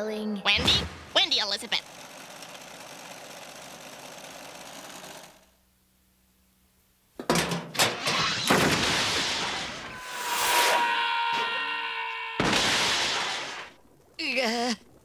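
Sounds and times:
cartoon crash and bang effects: 7.9 - 13.8
steady tone: 9.6 - 13.8.

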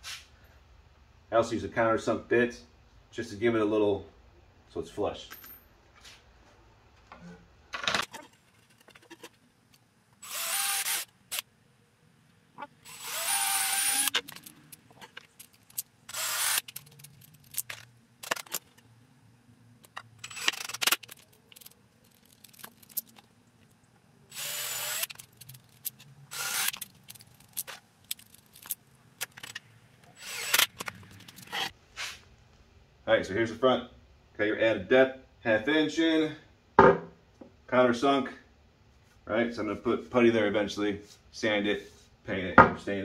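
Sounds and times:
cordless drill running: 10.2 - 11.1, 12.8 - 14.2, 16.1 - 16.7, 24.3 - 25.2, 26.3 - 26.8, 30.2 - 30.8.

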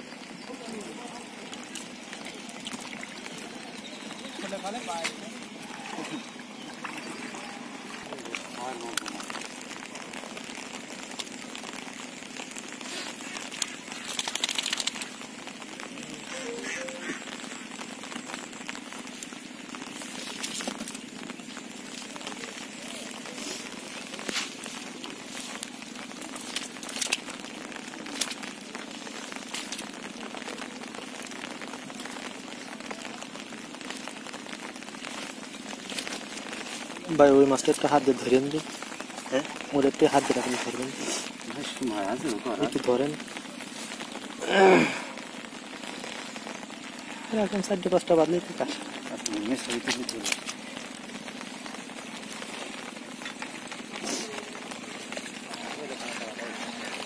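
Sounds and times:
steady hiss: 0.0 - 57.0
nylon net rustling: 0.5 - 57.0.

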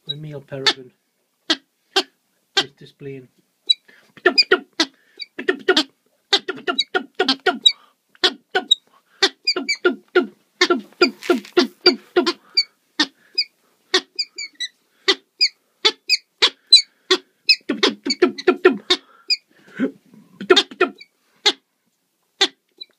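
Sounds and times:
falcon calling: 3.7 - 19.5.

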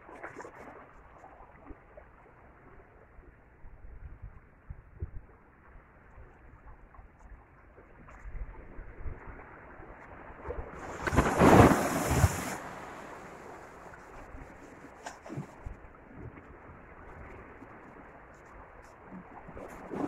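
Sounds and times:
sea waves washing against rocks: 10.7 - 15.5
large wave breaking over rocks: 10.8 - 14.0.

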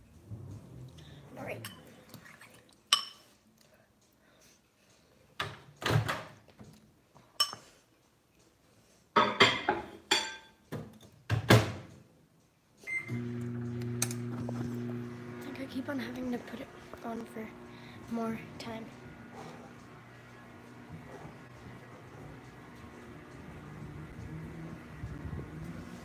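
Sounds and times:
microwave running hum: 12.9 - 26.0.

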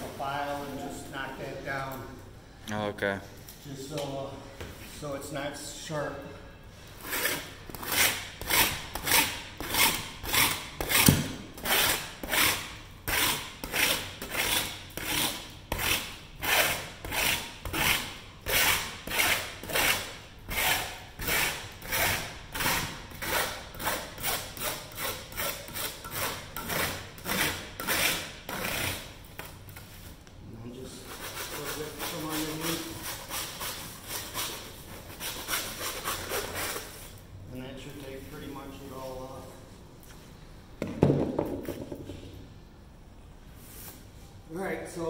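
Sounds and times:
file scraping metal edge: 7.0 - 29.1.

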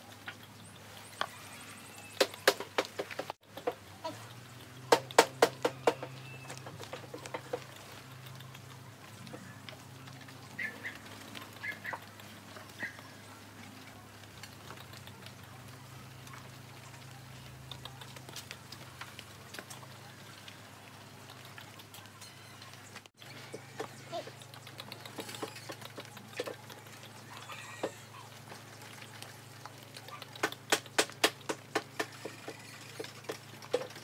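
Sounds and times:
hooves squelching in wet clay: 0.0 - 34.0.

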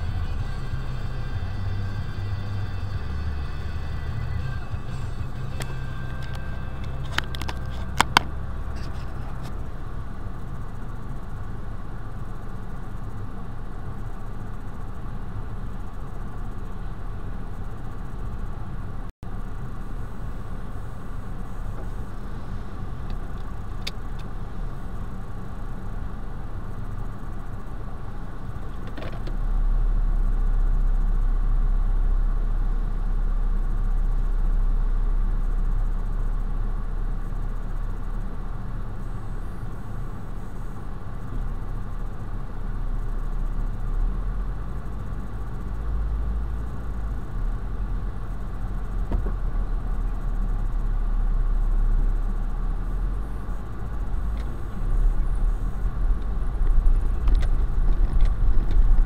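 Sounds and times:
car engine and road drone: 0.0 - 59.0
small rattles and knocks: 56.2 - 59.0.

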